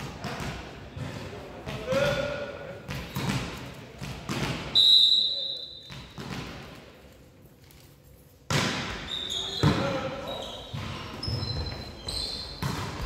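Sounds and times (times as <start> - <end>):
volleyball bouncing on floor: 2.9 - 4.8, 5.9 - 6.8, 8.5 - 10.0, 10.7 - 13.0
referee whistle blowing: 4.7 - 5.9.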